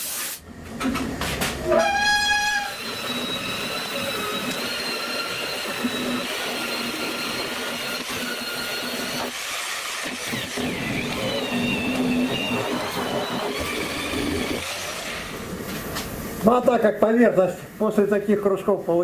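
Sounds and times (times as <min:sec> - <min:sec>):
angle grinder whining: 0:01.7 - 0:15.4.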